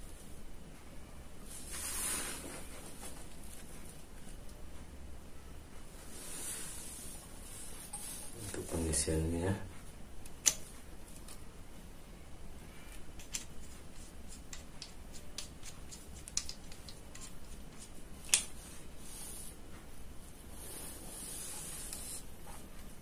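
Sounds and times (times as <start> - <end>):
faint hiss: 0.0 - 4.4, 5.8 - 9.8, 17.2 - 23.0.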